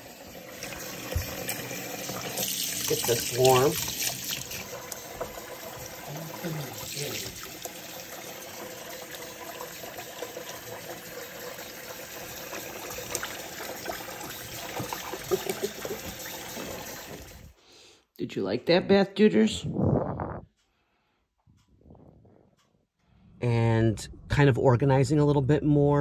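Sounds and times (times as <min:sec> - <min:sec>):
tap water running into basin: 0:00.0 - 0:17.6
water splashing: 0:00.5 - 0:10.1.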